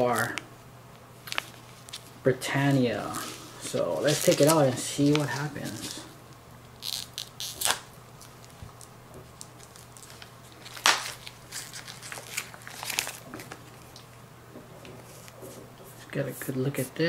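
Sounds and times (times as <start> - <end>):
plastic packaging crinkling: 1.2 - 2.2, 3.0 - 6.1, 6.7 - 14.0.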